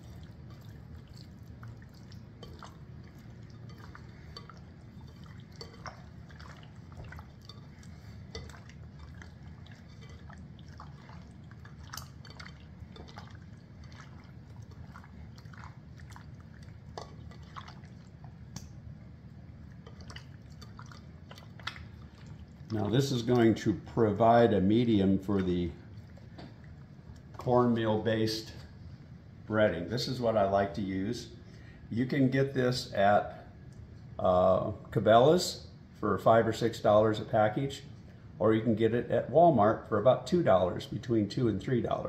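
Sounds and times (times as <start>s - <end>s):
wet squelching of hand mixing: 0.0s - 31.3s.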